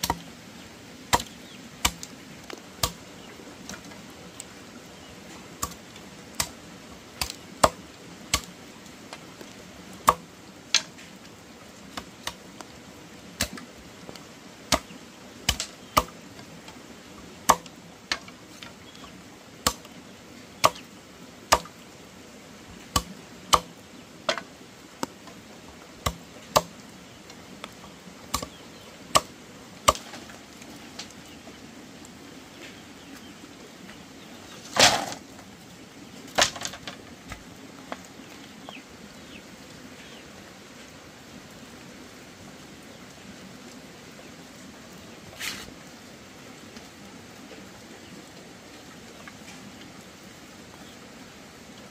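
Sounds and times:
hand tool striking wood: 0:17.5 - 0:18.3, 0:21.5 - 0:21.7.

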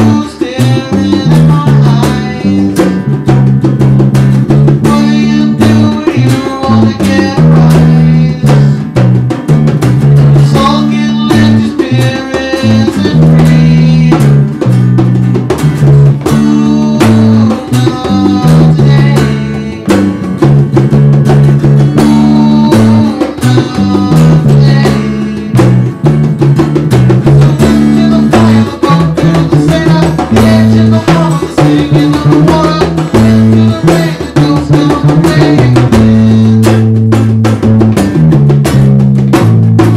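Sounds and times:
young man singing: 0:00.0 - 0:03.4, 0:04.4 - 0:09.0, 0:10.2 - 0:14.8, 0:15.8 - 0:20.2, 0:21.4 - 0:26.0, 0:27.2 - 0:37.0
electric bass: 0:00.0 - 0:39.9
hand drum: 0:00.0 - 0:39.9
strummed acoustic guitar: 0:00.0 - 0:39.9.

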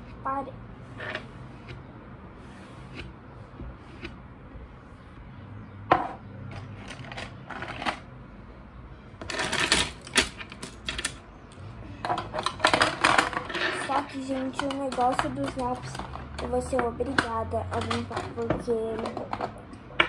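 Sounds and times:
pens clattering in pencil cup: 0:06.5 - 0:08.1, 0:12.0 - 0:19.8.

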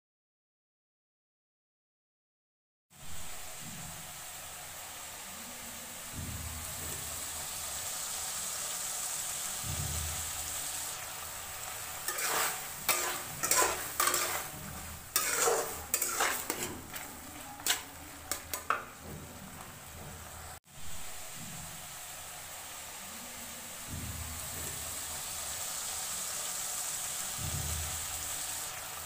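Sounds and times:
steady hiss of cooking: 0:02.9 - 0:29.0
spatula scraping metal pan: 0:11.6 - 0:20.3.

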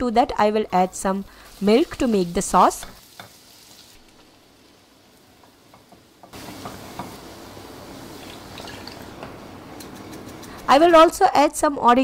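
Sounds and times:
liquid hissing in hot pan: 0:00.9 - 0:05.2.

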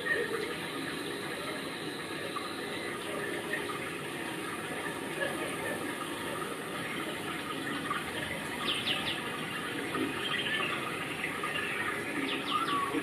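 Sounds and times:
high bird chirps: 0:08.6 - 0:09.3, 0:11.6 - 0:13.0.

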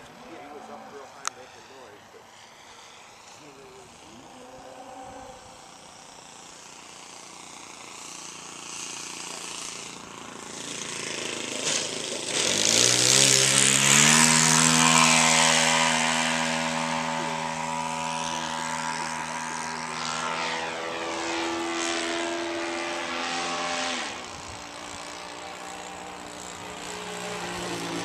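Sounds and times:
model plane engine droning: 0:00.0 - 0:28.0.

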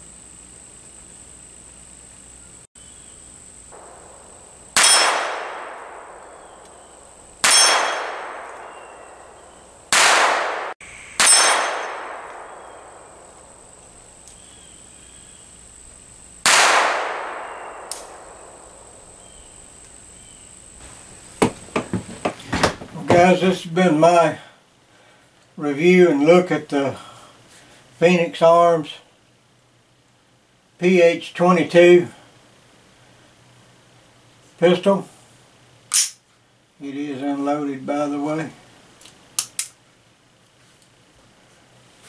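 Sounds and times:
bullets striking steel gong: 0:03.8 - 0:13.4.

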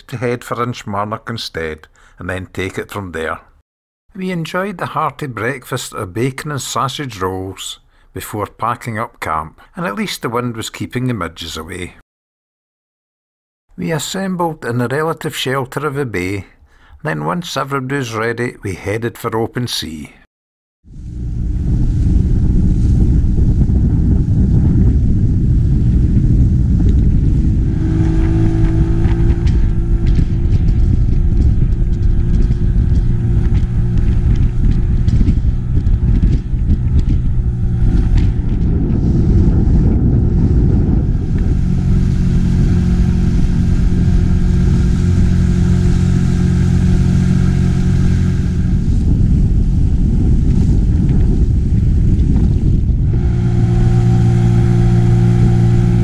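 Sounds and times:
outboard motor running: 0:20.9 - 0:24.0, 0:27.5 - 0:39.4, 0:41.0 - 0:49.2, 0:53.0 - 0:56.0
wind rumble on microphone: 0:20.9 - 0:56.0.

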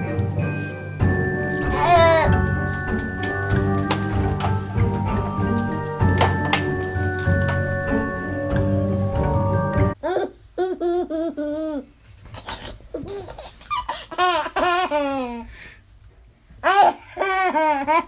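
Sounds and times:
young child laughing: 0:10.0 - 0:15.5.

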